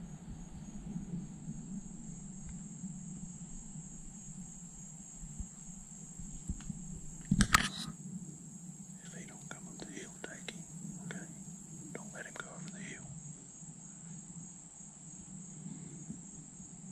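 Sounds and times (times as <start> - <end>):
insects trilling: 0.0 - 16.9
low steady hum: 0.0 - 16.9.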